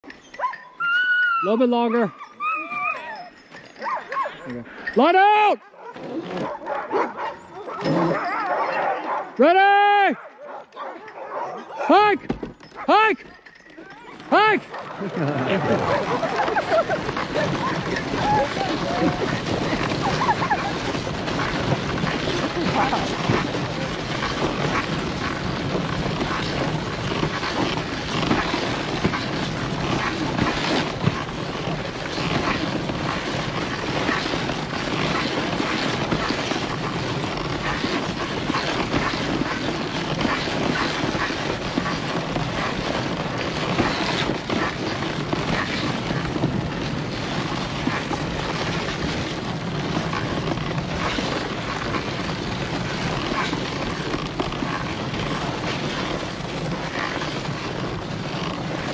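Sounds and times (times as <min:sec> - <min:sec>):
sled rattling: 0:00.0 - 0:58.9
sled runners hissing on snow: 0:15.0 - 0:58.9.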